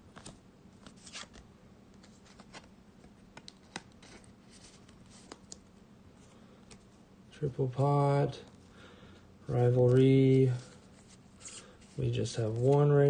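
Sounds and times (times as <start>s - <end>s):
cards sliding into plastic sleeves: 2.0s - 5.6s, 9.7s - 12.9s.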